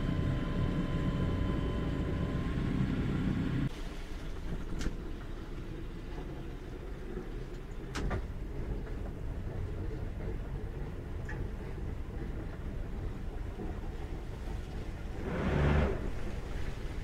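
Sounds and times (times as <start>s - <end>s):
boat engine rumbling with whine: 0.0s - 17.0s.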